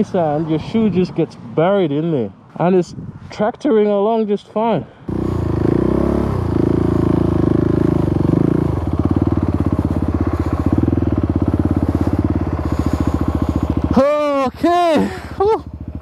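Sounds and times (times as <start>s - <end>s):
motorcycle engine running: 5.1s - 16.0s.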